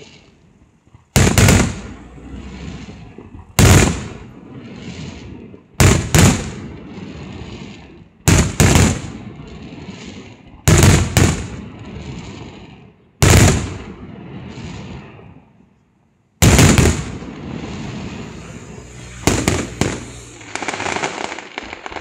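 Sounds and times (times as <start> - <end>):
rumble and crackle: 0.0 - 22.0
firework shells bursting: 1.2 - 4.4, 16.4 - 22.0.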